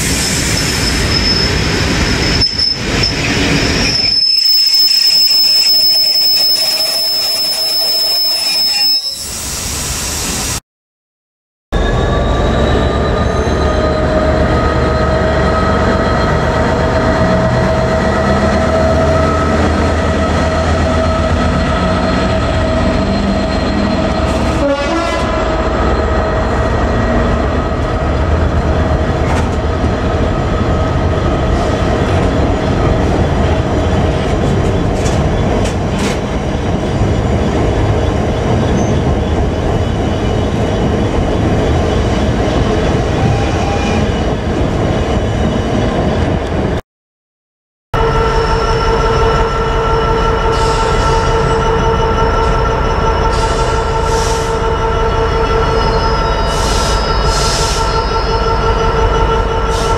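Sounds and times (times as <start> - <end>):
diesel locomotive passing: 11.8 - 46.8, 48.0 - 59.9
train wagons rumbling: 11.8 - 46.8.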